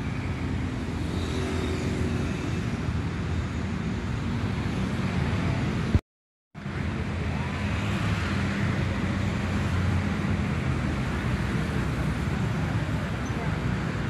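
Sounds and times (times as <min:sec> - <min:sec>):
motorbike and car engines humming: 0:00.0 - 0:06.0, 0:06.6 - 0:14.0
road traffic noise: 0:00.0 - 0:06.0, 0:06.6 - 0:14.0.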